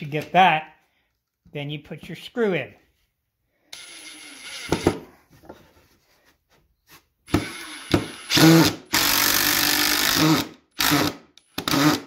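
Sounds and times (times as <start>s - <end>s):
impact driver motor: 3.7s - 5.1s, 7.3s - 12.0s.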